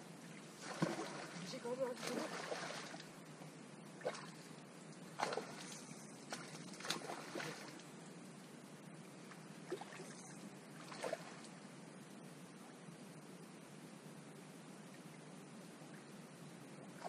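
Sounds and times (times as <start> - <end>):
man wading through shallow water: 0.2 - 3.3, 4.0 - 8.0, 9.4 - 11.6
fish thrashing in water: 0.6 - 1.4.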